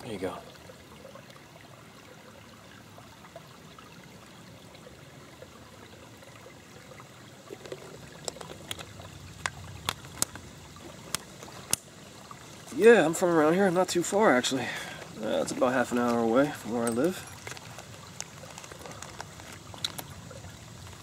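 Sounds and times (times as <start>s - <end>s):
trickling stream: 0.0s - 21.0s
plastic bottle crinkling: 7.5s - 10.5s, 17.1s - 20.2s.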